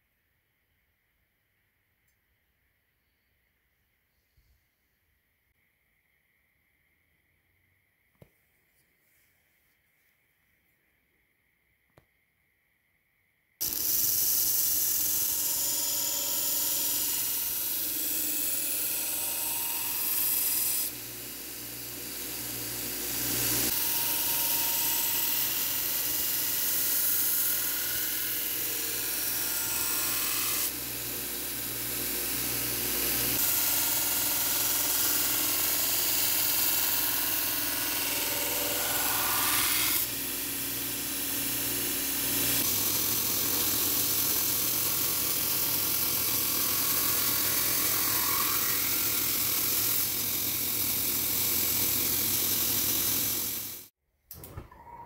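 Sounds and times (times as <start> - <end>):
belt grinder grinding steel blade: 13.6 - 53.9
grinder motor hum: 13.6 - 54.8.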